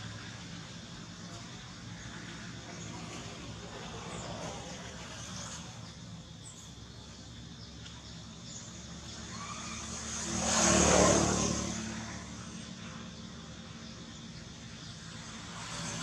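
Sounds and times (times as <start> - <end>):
vehicle passing by: 2.0 - 6.0, 8.4 - 16.0.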